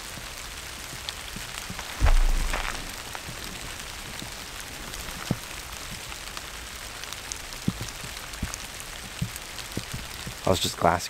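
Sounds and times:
raindrops ticking: 0.0s - 11.0s
steady rain: 0.0s - 11.0s.

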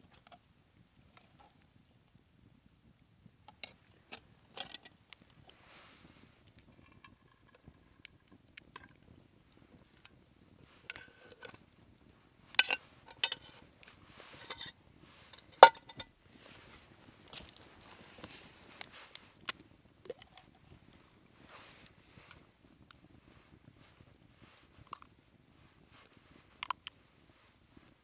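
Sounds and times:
metal cookware clinking and knocking: 15.4s - 16.1s.

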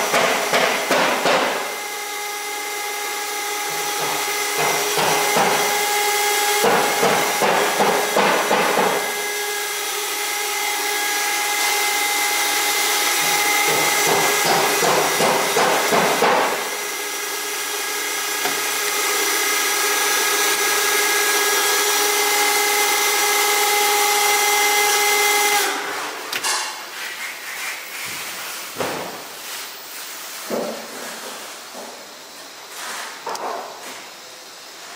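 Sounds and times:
pumps whining over hiss: 0.0s - 26.4s.

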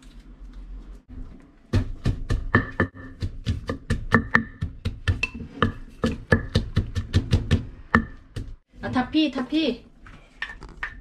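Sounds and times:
wooden pestle pounding in mortar: 1.7s - 8.7s.

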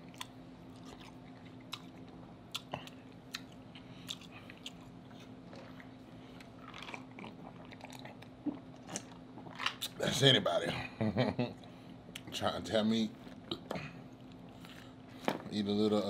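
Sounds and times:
wet chewing: 0.0s - 9.9s
faint low hum: 0.0s - 16.0s.

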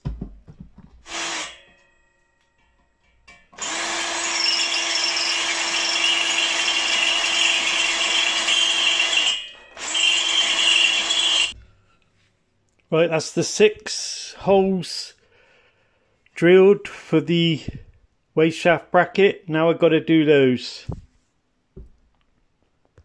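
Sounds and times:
cordless drill boring into metal: 1.1s - 1.8s, 3.6s - 11.6s.

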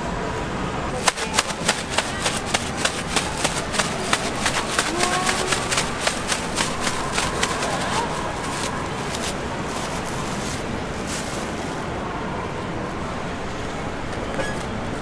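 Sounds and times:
busy market background noise: 0.0s - 15.0s.

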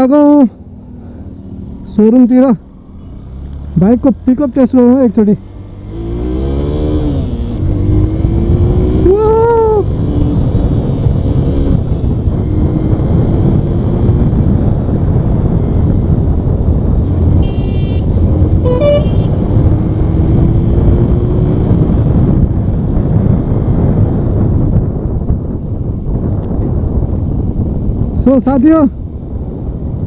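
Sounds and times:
motorcycle engine accelerating: 0.0s - 28.2s
wind rush: 0.0s - 30.0s
vehicle horn toots: 17.4s - 19.4s.

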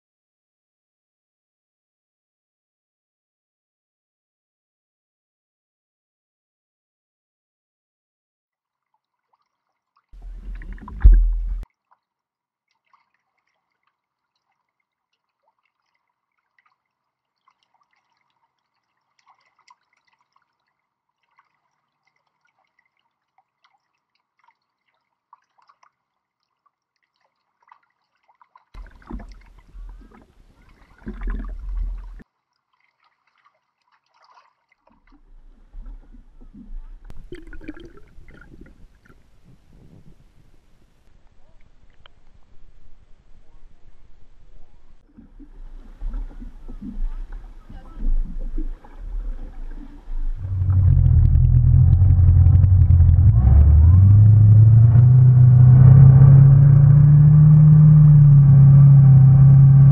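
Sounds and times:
water sloshing and gurgling: 8.7s - 12.1s, 12.7s - 40.4s, 44.3s - 59.9s
low water rumble: 10.2s - 11.7s, 28.8s - 32.2s, 35.0s - 59.9s.

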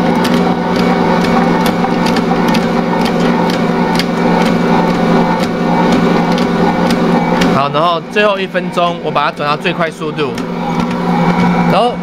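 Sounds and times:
dough knocking in bowl: 0.0s - 7.7s
stand mixer motor humming: 0.0s - 12.0s.

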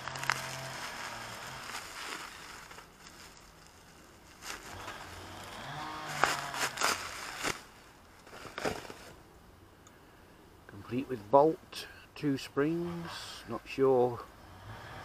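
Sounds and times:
bubble wrap crinkling and crackling: 0.0s - 9.2s.

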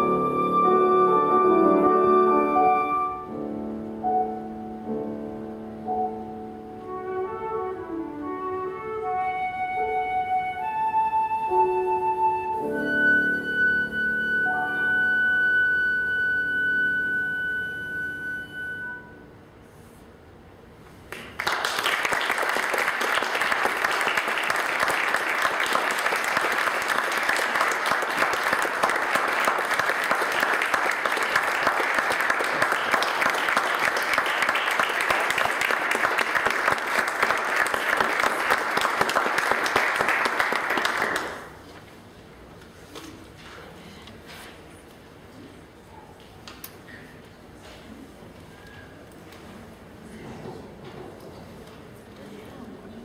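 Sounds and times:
audience applauding: 21.1s - 41.7s.

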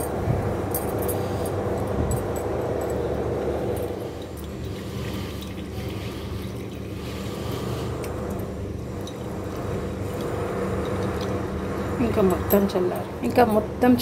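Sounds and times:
steady low hum: 0.0s - 14.0s
oil dribbling into a bowl: 4.0s - 11.9s.

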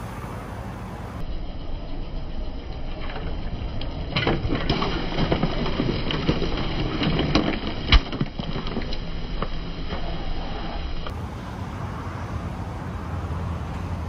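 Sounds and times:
plastic bottles crunching under tyre: 3.9s - 10.4s.

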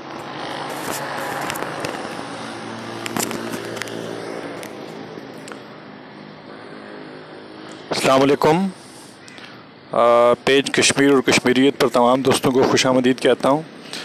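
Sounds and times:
steady background noise: 0.0s - 14.0s
microphone handling clicks and crackles: 0.1s - 5.6s.

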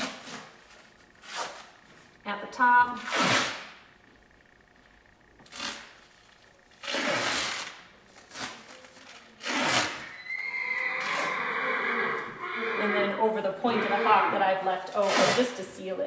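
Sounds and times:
adhesive tape tearing off roll: 0.0s - 1.8s, 3.0s - 3.8s, 5.4s - 10.1s, 14.9s - 15.6s.

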